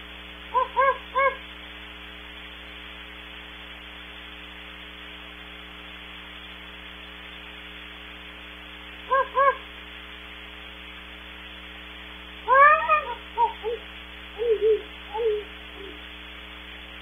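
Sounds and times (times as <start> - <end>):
electrical hum: 0.0 - 17.0
steady hiss: 0.0 - 17.0
owl hoots: 0.5 - 1.5, 9.1 - 9.7, 12.4 - 16.1.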